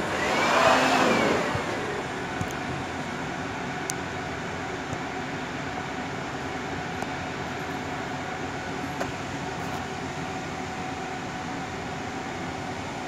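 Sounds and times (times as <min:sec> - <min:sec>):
electric air blower rushing air: 0:00.0 - 0:02.2.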